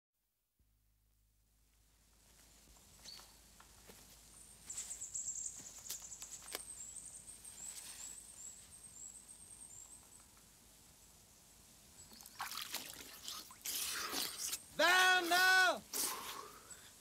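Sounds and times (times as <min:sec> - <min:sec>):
songbird chirping song: 0:02.7 - 0:13.6.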